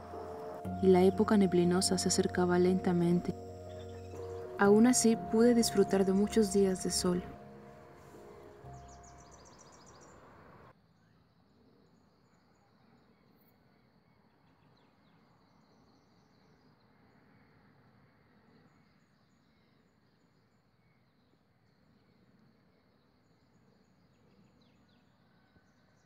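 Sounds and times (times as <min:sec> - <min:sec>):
high insect chirps: 0:00.0 - 0:08.0
background music: 0:00.0 - 0:10.3.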